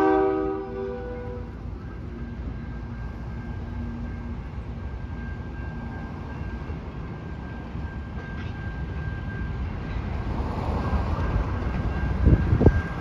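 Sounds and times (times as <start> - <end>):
crossing signal tone: 0.0 - 13.0
diesel locomotives rumbling: 0.0 - 13.0
freight cars rumbling on rails: 0.0 - 13.0.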